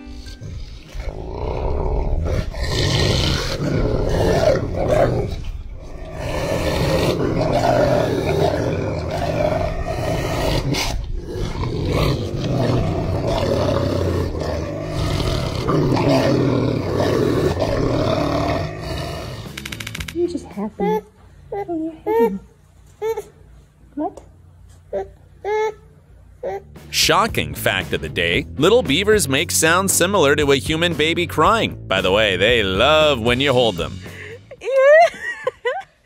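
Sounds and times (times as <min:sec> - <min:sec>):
dog growling: 0:00.0 - 0:19.6.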